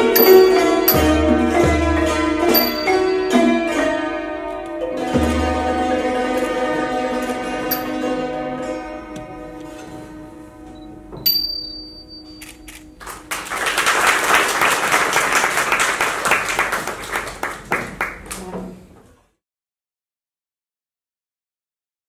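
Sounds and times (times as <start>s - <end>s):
bright metallic strike: 0.0s - 5.9s, 7.6s - 9.6s
hammered dulcimers and xylophone: 0.0s - 9.9s
audience applauding: 13.0s - 18.6s.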